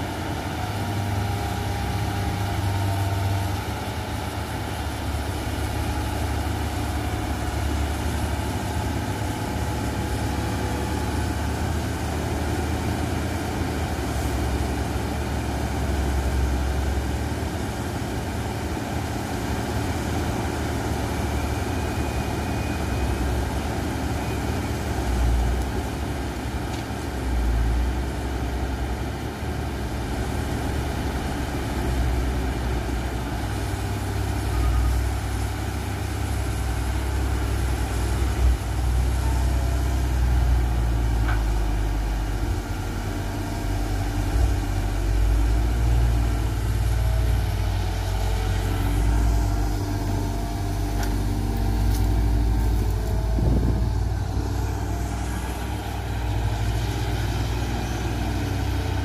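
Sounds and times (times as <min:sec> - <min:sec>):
diesel engines running: 0:00.0 - 0:59.0
excavator digging soil: 0:35.6 - 0:59.0.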